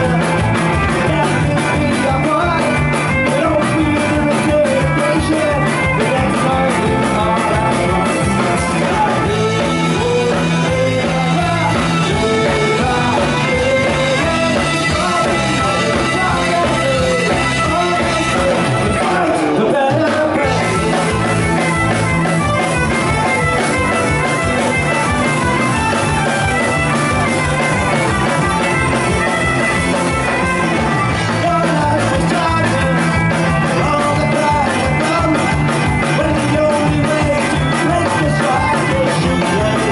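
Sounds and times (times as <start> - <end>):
male lead vocal: 0.0 - 21.5, 31.1 - 39.9
bass guitar: 0.0 - 39.9
drums: 0.0 - 39.9
fiddle: 20.5 - 39.9.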